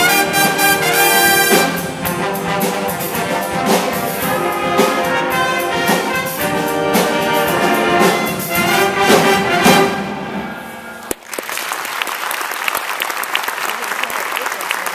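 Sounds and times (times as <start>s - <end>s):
jazz band playing: 0.0s - 11.2s
audience applause: 11.1s - 14.9s.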